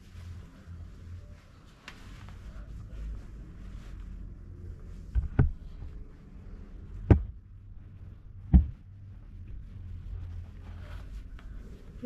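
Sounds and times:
low steady hum: 0.0 - 12.0
dull thumps: 5.1 - 5.7, 7.0 - 7.4, 8.4 - 9.0.

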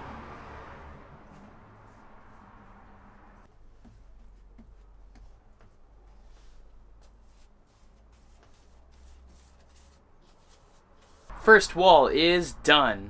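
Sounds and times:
paintbrush strokes on wall: 0.2 - 11.5.

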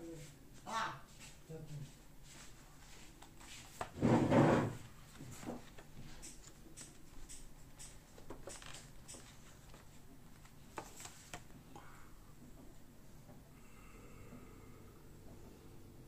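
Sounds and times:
light clicks and taps: 5.4 - 11.8.

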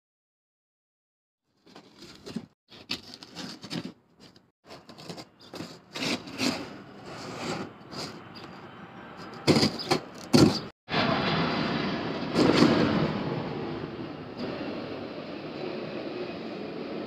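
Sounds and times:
knife slicing cardboard: 4.7 - 8.1, 9.5 - 10.7.

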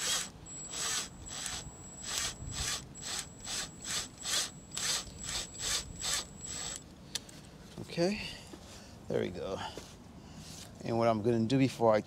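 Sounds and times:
cordless drill whining: 0.0 - 6.8
screw grinding into wall: 0.0 - 6.8.

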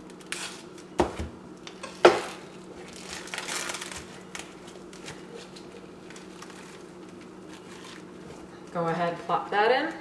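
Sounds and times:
plastic wrap crinkling: 2.2 - 10.0.

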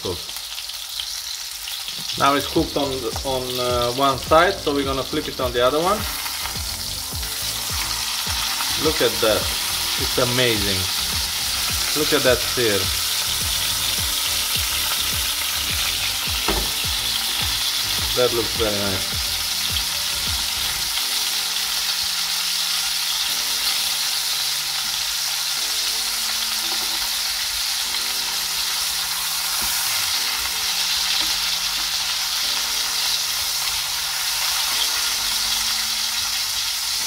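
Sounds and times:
steak sizzling in a frying pan: 0.0 - 37.0.

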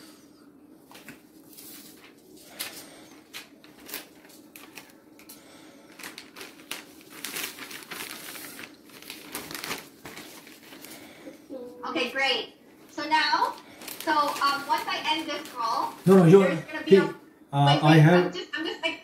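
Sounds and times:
paper envelope rustling: 0.9 - 11.2, 13.4 - 16.4.

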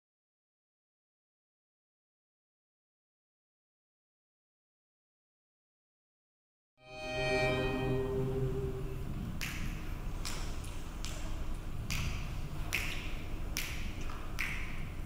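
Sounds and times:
held starting pitch: 6.8 - 9.3
finger snaps: 9.4 - 15.0.

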